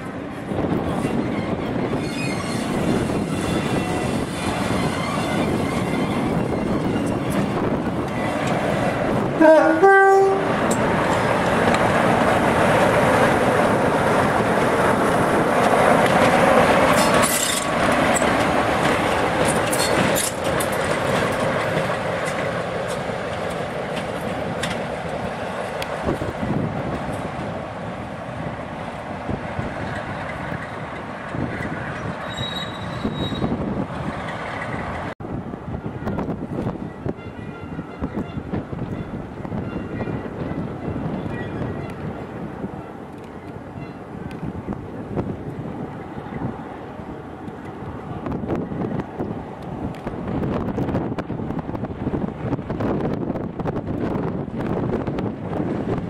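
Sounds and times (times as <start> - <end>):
wheel and rail noise: 0.0 - 56.0
two-note train horn blast: 9.4 - 10.6.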